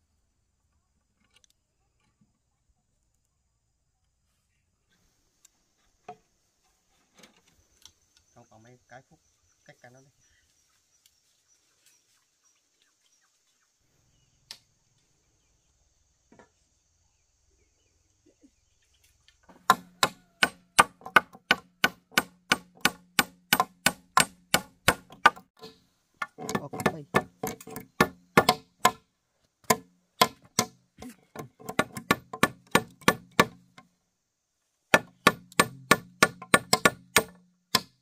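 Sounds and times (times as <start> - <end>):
hammer driving nails into wood: 19.5 - 29.0, 29.6 - 33.8, 34.9 - 38.0.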